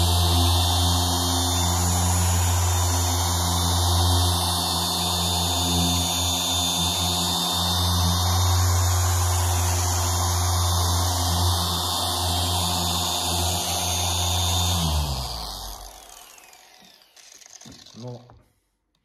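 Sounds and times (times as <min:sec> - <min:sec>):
polisher running: 0:00.0 - 0:18.2
polisher winding down: 0:00.0 - 0:18.4.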